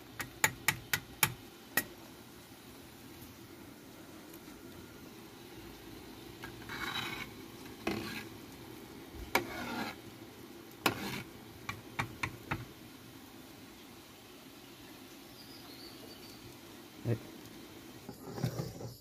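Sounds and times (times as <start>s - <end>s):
wood fire crackling and popping: 5.6s - 13.1s.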